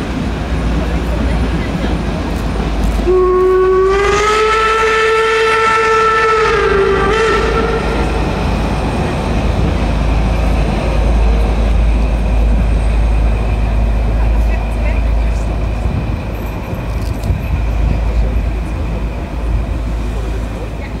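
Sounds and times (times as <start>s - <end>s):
train rumbling: 0.0s - 21.0s
steam locomotive whistle: 3.0s - 8.5s.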